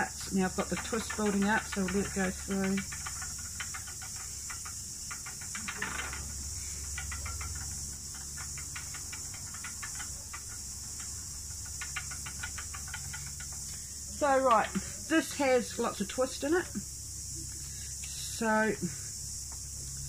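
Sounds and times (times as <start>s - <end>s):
fast clicking: 0.0s - 16.9s
cicadas droning: 0.0s - 20.0s.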